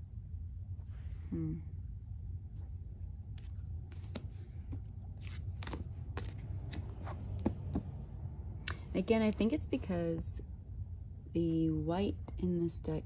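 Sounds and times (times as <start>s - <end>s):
steady low hum: 0.0s - 13.0s
cards snapping and sliding: 3.4s - 7.5s.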